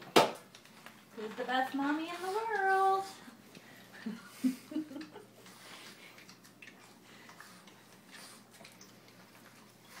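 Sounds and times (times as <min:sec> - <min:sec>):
dog licking wet smacks: 0:04.9 - 0:10.0.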